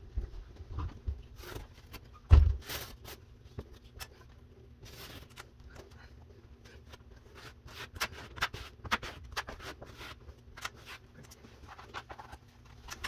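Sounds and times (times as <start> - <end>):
tape rustling and clicking: 7.8 - 13.0.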